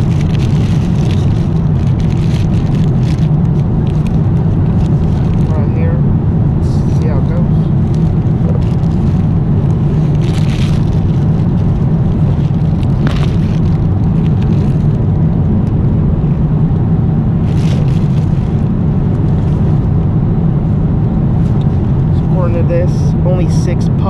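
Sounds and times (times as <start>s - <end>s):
plastic bag crinkling: 0.0s - 5.7s, 7.6s - 15.2s, 17.4s - 19.8s
airliner cabin drone: 0.0s - 24.0s.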